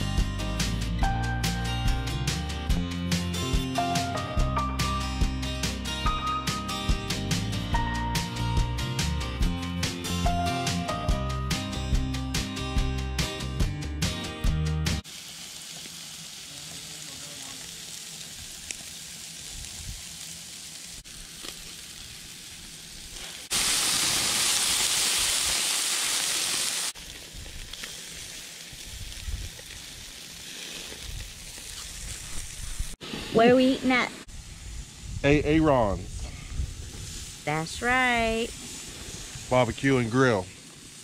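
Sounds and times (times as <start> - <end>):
meat sizzling on a grill: 15.0 - 41.0.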